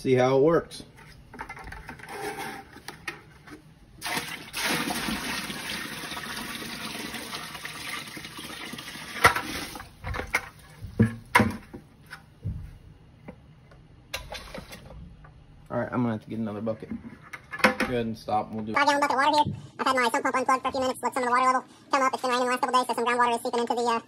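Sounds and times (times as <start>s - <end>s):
water pouring into a pit: 4.0s - 9.9s.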